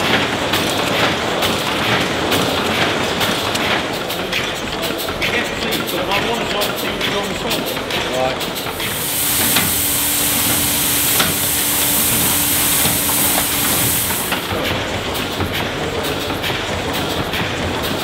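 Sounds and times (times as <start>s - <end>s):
mill steam engine running: 0.0s - 18.0s
steam hissing: 6.7s - 18.0s
steady hum: 8.7s - 15.4s.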